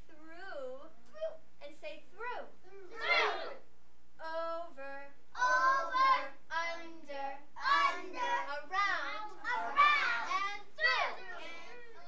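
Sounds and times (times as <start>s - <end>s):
young children singing: 2.7s - 3.6s, 5.4s - 12.0s.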